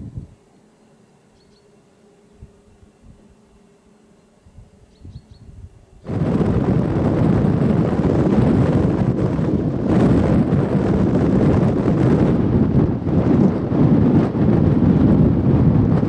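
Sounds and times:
wind buffeting microphone: 0.0s - 0.4s, 4.5s - 16.0s.

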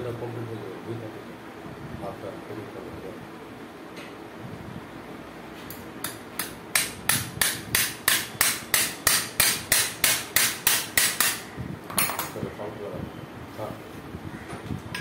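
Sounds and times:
hammer striking metal pin: 5.7s - 11.4s.

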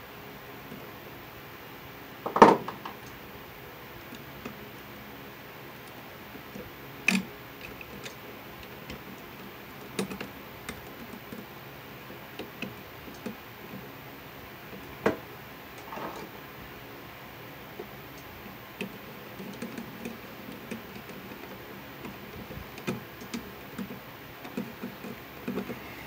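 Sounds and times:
scraping rustle: 15.8s - 16.4s.

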